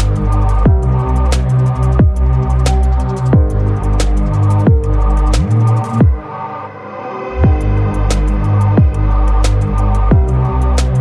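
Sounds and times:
ticking hi-hats: 0:00.0 - 0:06.2, 0:07.4 - 0:11.0
electronic music bass line: 0:00.0 - 0:06.5, 0:07.3 - 0:11.0
deep bass hits dropping in pitch: 0:07.4 - 0:10.6.

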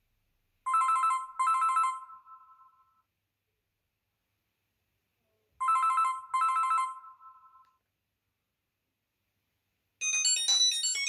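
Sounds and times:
trilling phone ringtone: 0:05.6 - 0:07.7, 0:10.0 - 0:11.0
ringtone with high notes: 0:10.0 - 0:11.0.

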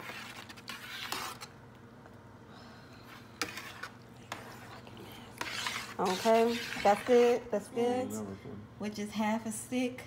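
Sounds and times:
spoon stirring macaroni: 0:00.0 - 0:01.6, 0:03.0 - 0:07.6.

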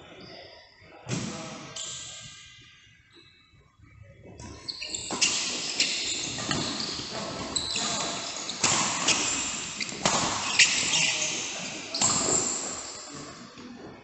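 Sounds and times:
court noise: 0:04.5 - 0:14.0
racket hitting shuttlecock: 0:08.6 - 0:10.9.

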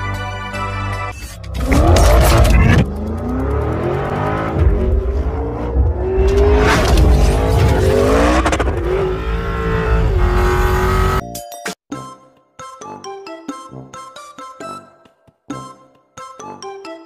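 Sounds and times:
car engine revving and accelerating: 0:01.4 - 0:11.2.

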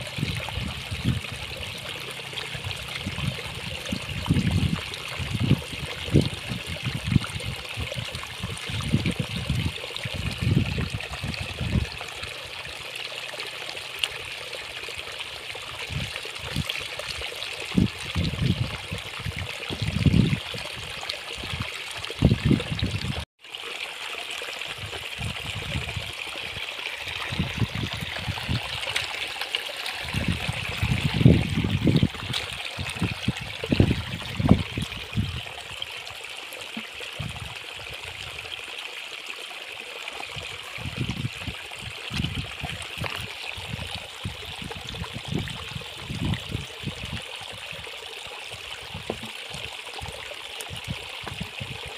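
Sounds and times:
shallow water trickling: 0:00.0 - 0:51.9.

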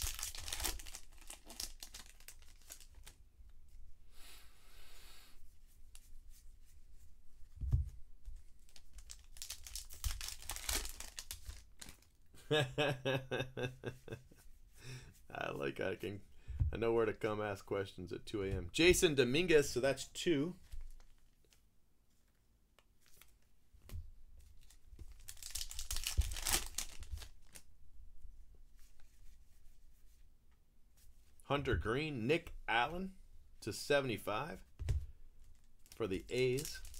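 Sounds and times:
card pack wrapper crinkling: 0:00.0 - 0:03.2, 0:08.7 - 0:12.1, 0:24.6 - 0:27.6, 0:35.5 - 0:36.9.

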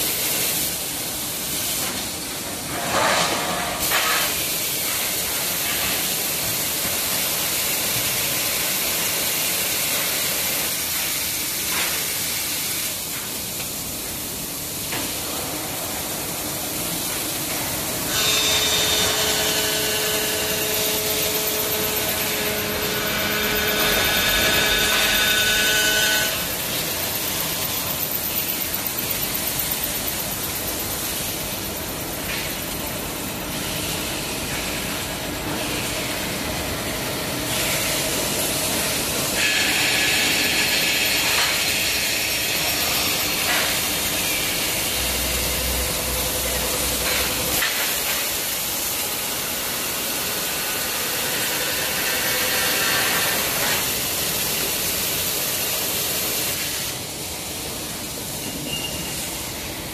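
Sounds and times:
machine whine: 0:17.1 - 0:33.2.

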